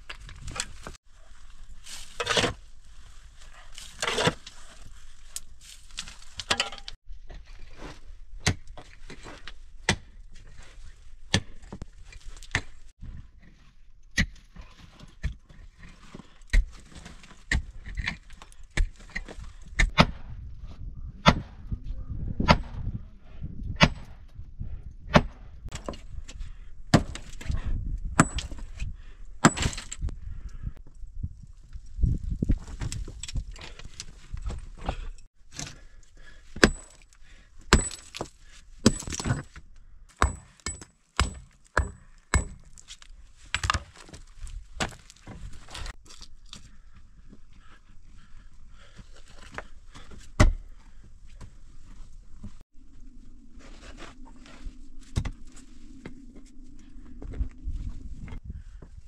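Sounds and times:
gravel and dirt scraping: 0.0s - 20.9s, 25.4s - 58.8s
digging tool striking rocks: 8.4s - 8.8s, 16.5s - 20.3s, 23.8s - 24.2s, 25.1s - 26.1s, 26.9s - 27.5s, 28.1s - 28.7s, 29.4s - 30.1s, 36.5s - 46.3s.

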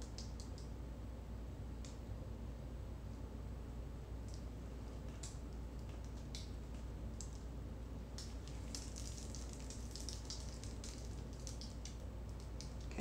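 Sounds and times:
paint dripping wet ticks: 0.0s - 0.7s, 4.2s - 7.4s, 8.1s - 13.0s.

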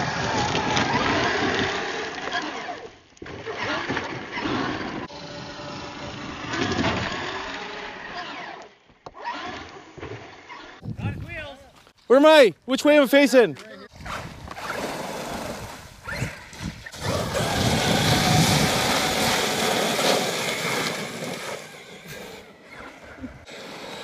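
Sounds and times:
toy truck motor whine: 3.6s - 9.9s, 16.9s - 24.0s
tyres on gravel: 10.5s - 24.0s.

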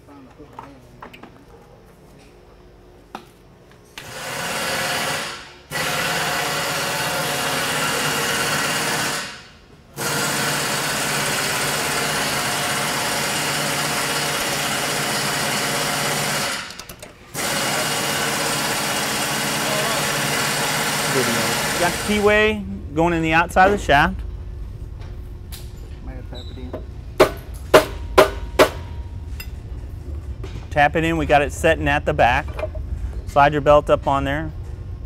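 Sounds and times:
loud steady machine noise: 4.0s - 24.8s.

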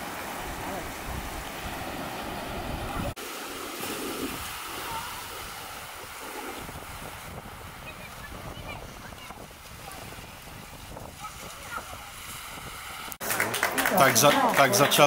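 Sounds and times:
wind rumble on microphone: 0.4s - 3.2s, 3.9s - 13.2s.

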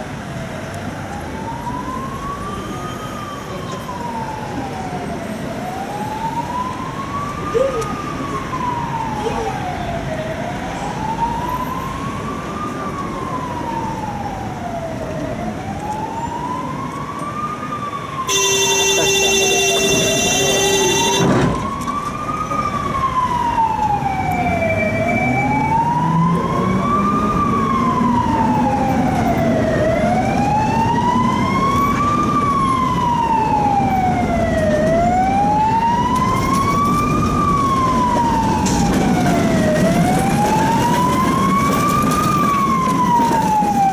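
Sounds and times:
emergency siren wailing: 0.8s - 43.9s
loud steady buzzing tone: 18.3s - 21.4s.

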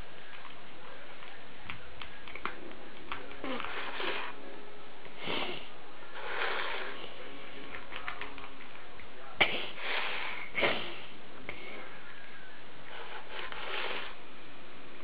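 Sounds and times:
cat sniffing: 5.2s - 7.2s, 12.9s - 14.2s.

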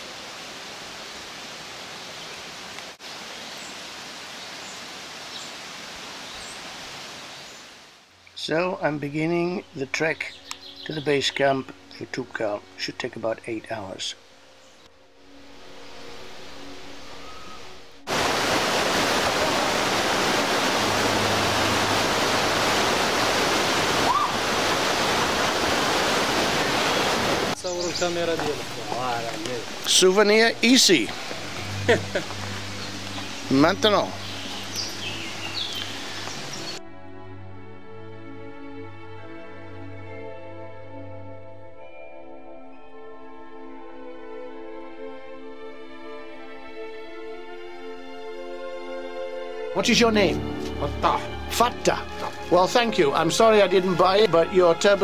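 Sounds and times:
steady rushing outdoor noise: 14.2s - 36.8s.

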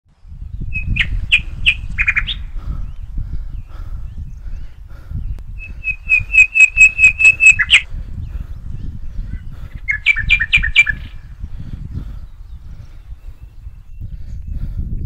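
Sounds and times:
bird calling piercing notes: 5.6s - 7.8s, 9.9s - 11.2s.

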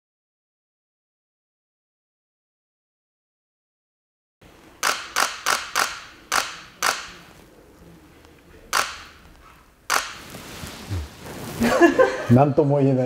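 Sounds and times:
camera shutter clicks: 4.8s - 7.2s, 8.7s - 9.2s, 9.9s - 10.2s.

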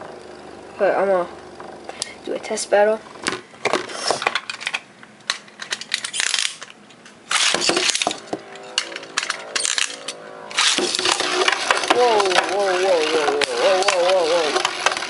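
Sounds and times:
plastic clicks and clatters: 3.2s - 8.3s
spinning top whirring: 7.3s - 15.0s
spinning top launch burst: 9.1s - 15.0s.

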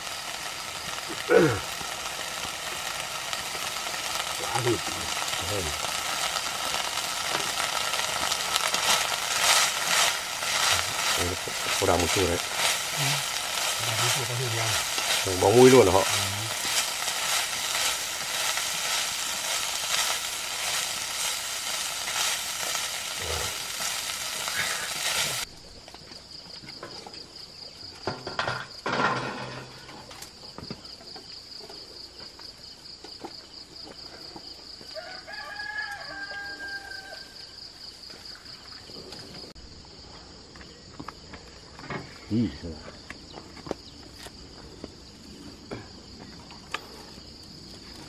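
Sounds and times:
food sizzling in a pan: 0.0s - 25.5s, 34.7s - 39.6s
high drone of insects: 0.0s - 48.0s
rooster crowing: 34.8s - 37.6s.

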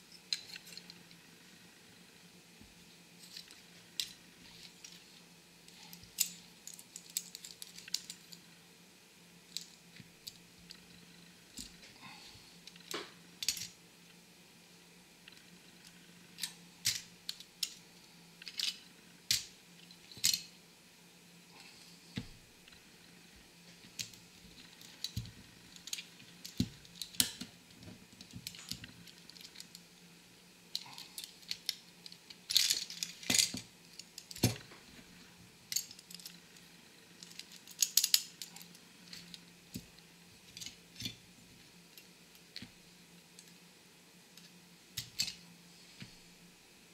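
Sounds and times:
faint low hum: 0.0s - 46.9s
toy-car parts clicking and tapping: 18.4s - 19.5s, 24.8s - 27.5s, 37.2s - 39.9s.

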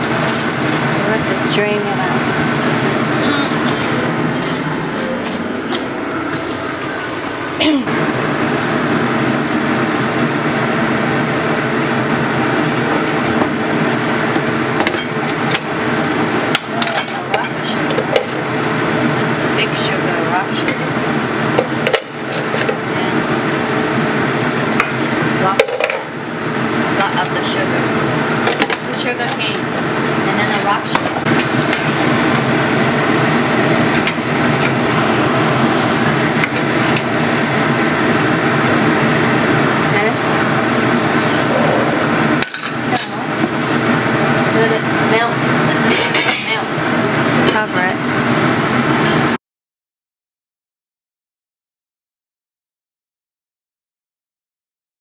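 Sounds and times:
gas stove burner hum: 0.0s - 49.3s
pot boiling and bubbling: 5.5s - 19.4s, 29.7s - 49.0s.

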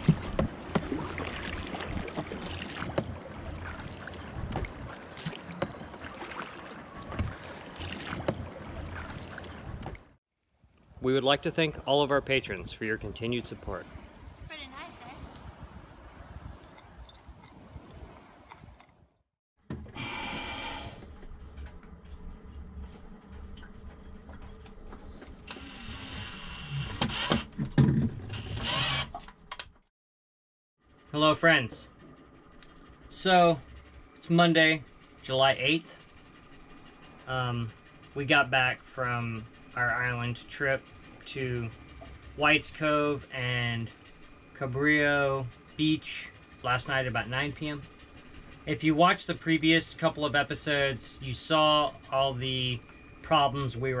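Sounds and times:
wind rumbling on microphone: 0.0s - 5.9s, 10.8s - 19.1s
oar blades splashing: 0.0s - 10.0s.

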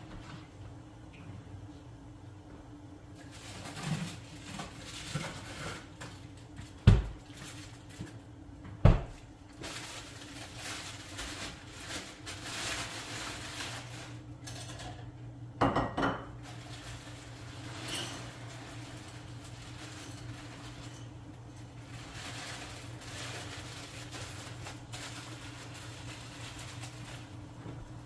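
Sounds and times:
clatter of dishes: 14.4s - 16.4s, 17.7s - 18.6s.

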